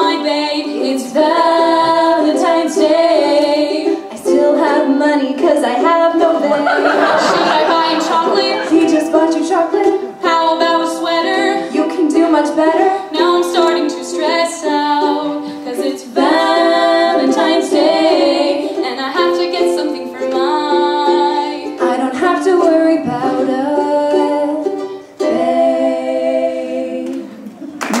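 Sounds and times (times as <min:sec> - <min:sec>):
women singing: 0:00.0 - 0:27.7
ukulele: 0:00.0 - 0:28.0.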